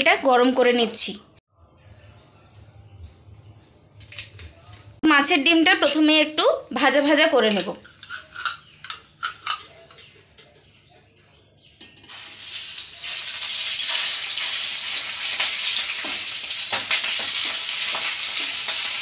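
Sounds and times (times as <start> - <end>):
fish roe sizzling in hot oil: 12.1 - 19.0.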